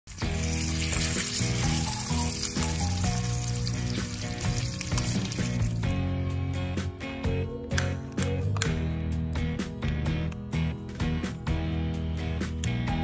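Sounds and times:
fish sizzling in oil: 0:00.1 - 0:06.0
background music: 0:00.1 - 0:13.0.

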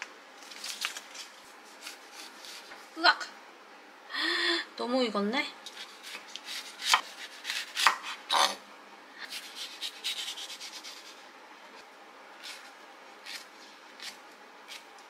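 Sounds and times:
knife slicing melon on cutting board: 0:05.7 - 0:08.6, 0:12.4 - 0:14.9.

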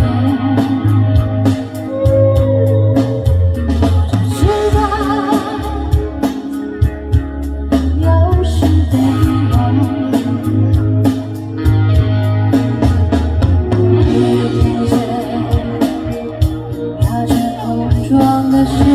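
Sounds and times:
woman singing: 0:00.0 - 0:01.4, 0:04.1 - 0:06.4, 0:07.8 - 0:10.7, 0:14.0 - 0:18.9
bass guitar: 0:00.0 - 0:18.9
drum kit: 0:00.0 - 0:18.9
electric guitars: 0:00.0 - 0:18.9.

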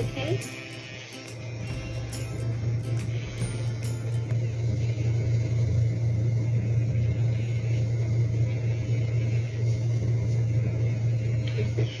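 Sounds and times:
electric nail grinder humming: 0:00.0 - 0:09.3.

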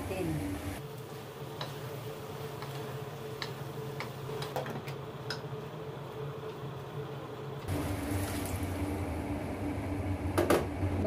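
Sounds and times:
wooden spatula clicking on pan: 0:03.4 - 0:04.6
broth pouring through strainer: 0:07.7 - 0:09.1.

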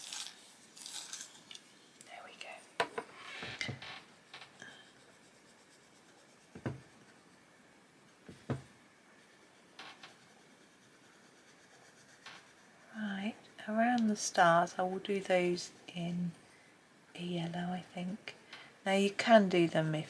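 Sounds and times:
pencil scratching on paper: 0:04.1 - 0:07.5, 0:09.2 - 0:16.0
soft knocks: 0:06.6 - 0:06.9, 0:08.2 - 0:08.8.

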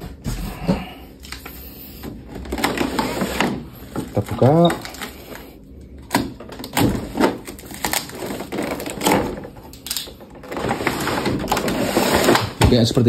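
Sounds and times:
packaging rustling: 0:02.1 - 0:05.6, 0:06.4 - 0:12.6.

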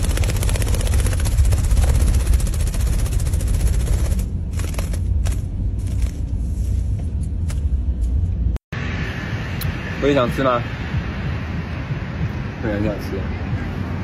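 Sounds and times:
parrot wings fluttering: 0:00.0 - 0:06.4
low rumble: 0:00.0 - 0:14.0.

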